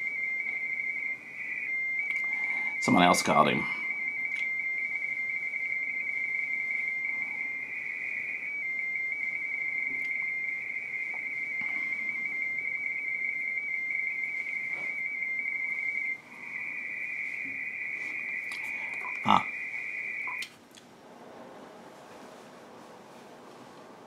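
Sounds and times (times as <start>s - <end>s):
two-tone radio teletype warble: 11.6s - 20.4s.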